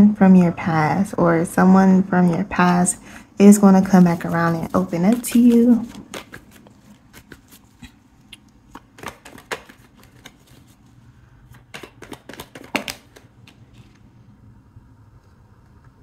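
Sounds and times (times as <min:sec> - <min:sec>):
cards being shuffled by hand: 0:03.8 - 0:14.1.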